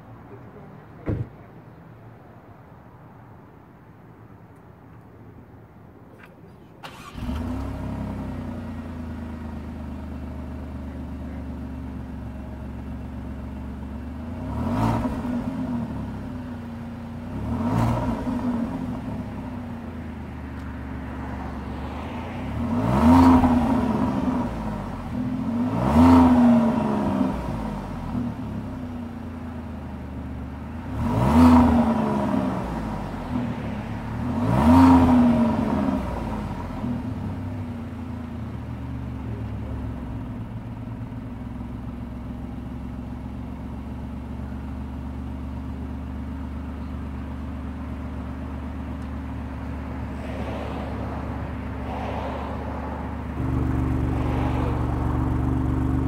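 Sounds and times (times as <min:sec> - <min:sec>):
car exhaust revving: 0:22.5 - 0:28.5, 0:30.7 - 0:33.4, 0:34.0 - 0:37.2, 0:38.5 - 0:56.0.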